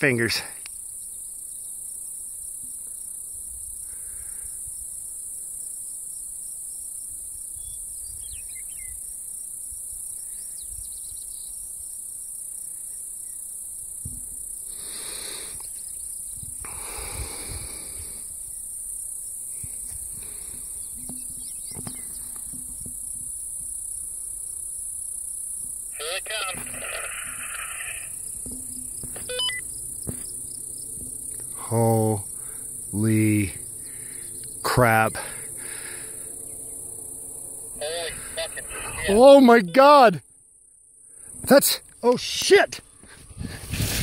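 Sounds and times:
insect chorus: 0.0s - 44.0s
faint rushing noise: 26.0s - 40.1s.

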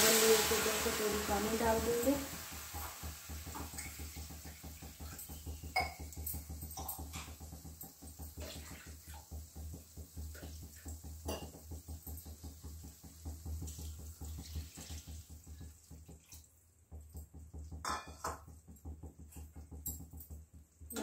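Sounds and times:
water pouring into a pan: 0.0s - 16.7s.

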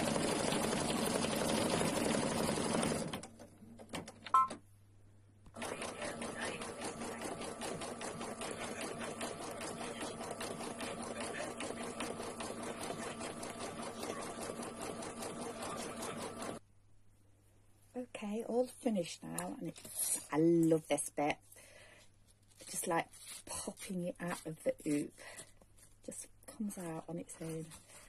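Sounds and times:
embroidery machine stitching: 0.0s - 4.2s, 5.6s - 16.6s.

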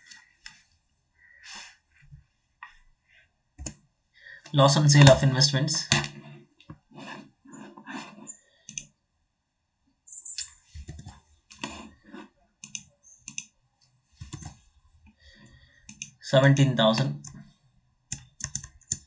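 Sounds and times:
keyboard typing: 10.2s - 13.5s, 14.2s - 14.6s, 15.8s - 16.2s, 18.1s - 19.0s.

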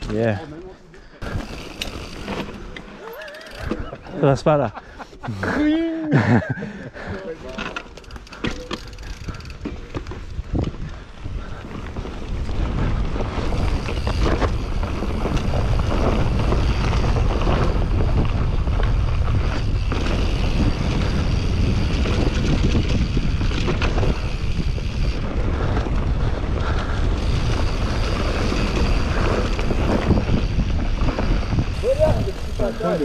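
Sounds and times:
bike knocks and rattles: 7.5s - 10.8s, 13.3s - 26.6s
wind buffeting microphone: 8.7s - 33.0s.

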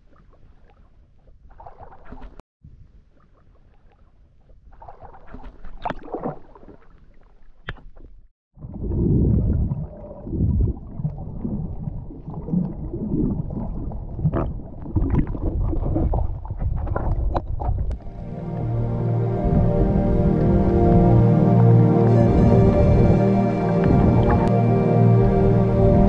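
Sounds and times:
water sloshing and splashing: 0.0s - 2.4s, 3.1s - 21.7s
muffled underwater rumble and gurgle: 8.6s - 26.0s.

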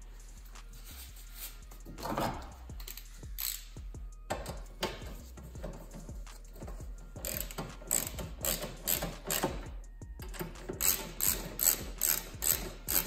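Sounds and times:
socket ratchet clicking: 2.5s - 5.1s, 7.0s - 13.0s.

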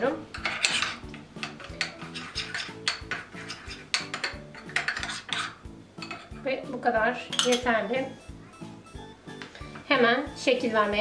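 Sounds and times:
quiet background music: 0.0s - 11.0s
metal spoon scraping ceramic bowl: 0.3s - 6.4s, 7.3s - 7.8s.

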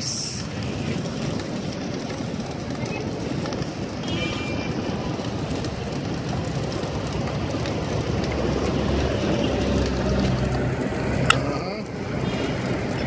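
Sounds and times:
gas burner hissing: 0.0s - 13.0s
passing engine: 0.0s - 13.0s
street traffic noise: 0.0s - 13.0s.

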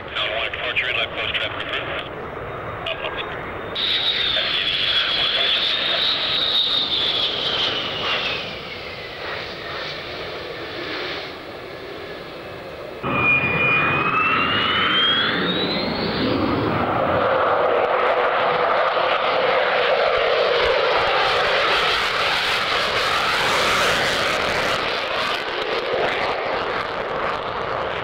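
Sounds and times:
jet whine rising in pitch: 1.2s - 27.9s
jet whine falling in pitch: 1.3s - 27.9s.

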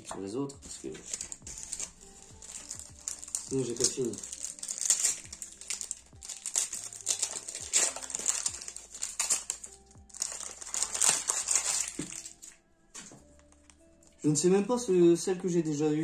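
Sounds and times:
foil pack crinkling: 0.8s - 12.6s.

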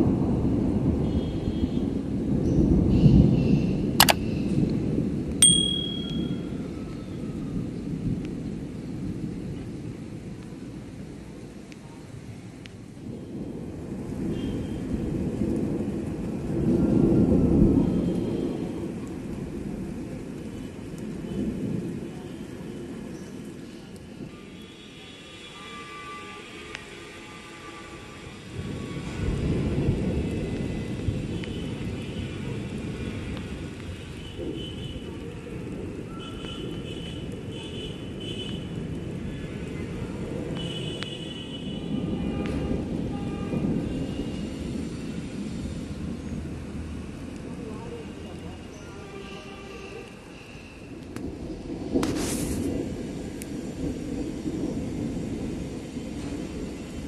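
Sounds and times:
low rumble of thunder: 0.0s - 5.4s, 6.2s - 24.3s, 28.4s - 47.8s, 50.9s - 57.0s
faint high tones: 5.4s - 6.6s.

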